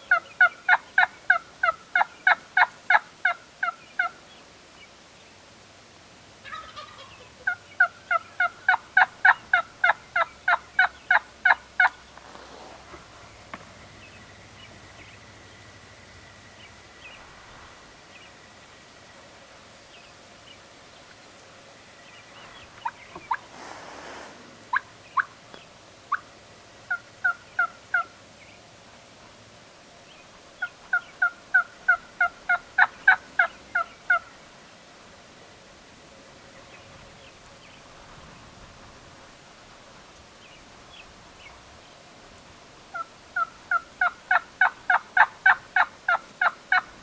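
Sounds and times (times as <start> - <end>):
wild turkeys calling: 0.0 - 4.9, 6.4 - 17.3, 18.0 - 28.6, 30.1 - 34.4, 42.9 - 47.0.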